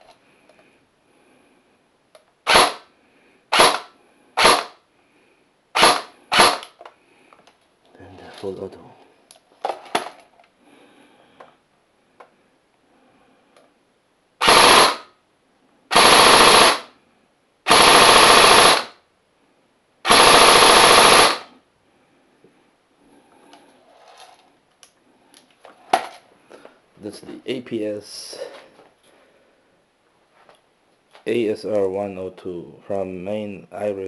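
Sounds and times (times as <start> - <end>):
airsoft rifle firing full auto: 2.4 - 2.9, 3.5 - 4.8, 5.8 - 6.8, 14.4 - 15.1, 15.9 - 16.9, 17.7 - 19.0, 20.0 - 21.5.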